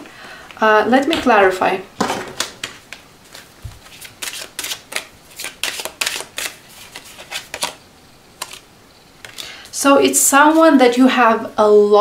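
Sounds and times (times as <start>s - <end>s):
cards being shuffled: 2.4s - 7.8s, 8.4s - 9.4s.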